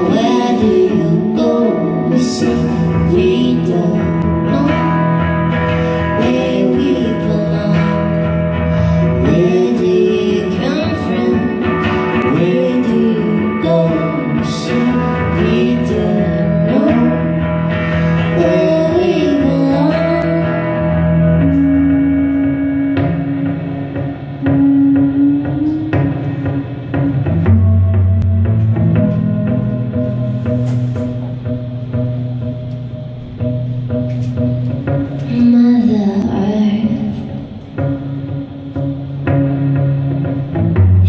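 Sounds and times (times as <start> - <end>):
person singing: 0.0 - 23.0, 24.4 - 27.8, 34.9 - 38.1
guitar accompaniment: 0.0 - 41.0
held low note: 21.0 - 37.1
higher held note: 24.2 - 33.4.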